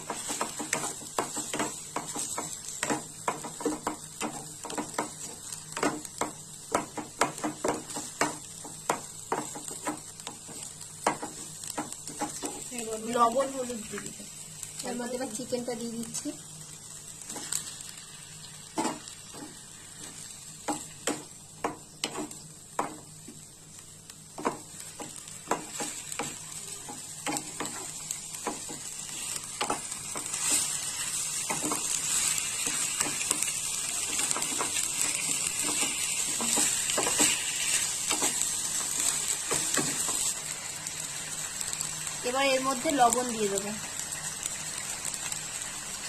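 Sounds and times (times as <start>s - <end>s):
chicken sizzling in oil: 0.0s - 46.0s
spatula scraping a pan: 24.4s - 40.2s.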